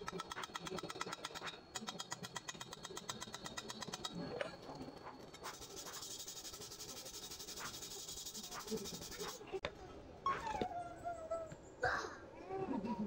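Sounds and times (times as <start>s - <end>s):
rapid clicks: 0.0s - 9.4s
wire brush scrubbing steel: 0.0s - 9.4s.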